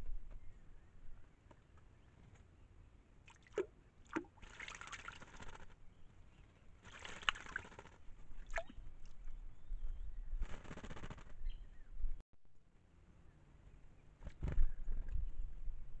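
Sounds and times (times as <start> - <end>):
bird splashing in water: 3.3 - 5.7, 6.8 - 9.3.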